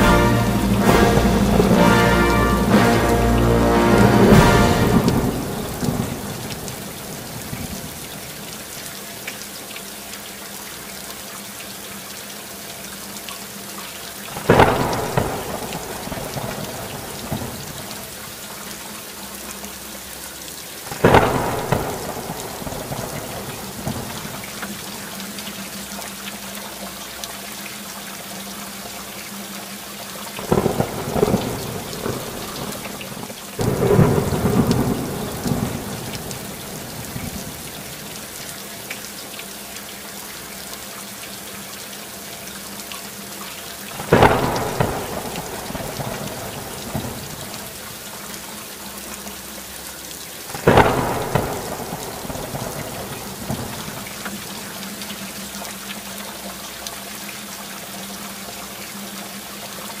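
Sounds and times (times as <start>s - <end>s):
thunder claps: 0.0s - 8.0s, 14.4s - 17.9s, 20.9s - 24.8s, 30.4s - 38.2s, 44.0s - 47.7s, 50.5s - 54.4s
steady rain falling: 0.0s - 60.0s.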